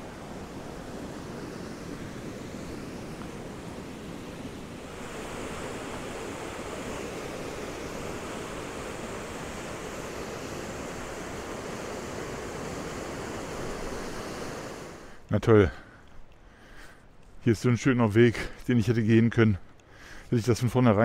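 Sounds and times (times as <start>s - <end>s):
river rushing over weir: 0.0s - 15.2s.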